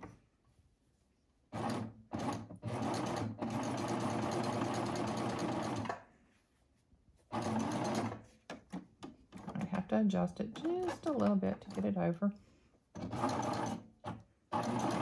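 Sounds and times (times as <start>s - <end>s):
serger sewing machine running: 1.6s - 5.9s, 7.3s - 8.2s, 13.0s - 15.0s.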